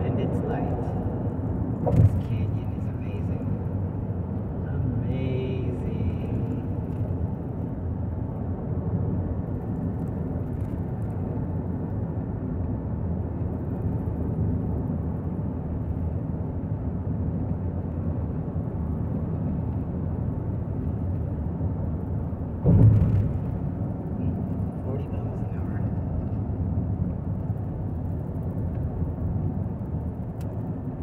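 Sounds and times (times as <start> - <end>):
car road and engine noise: 0.0 - 31.0
low thump: 22.6 - 23.8.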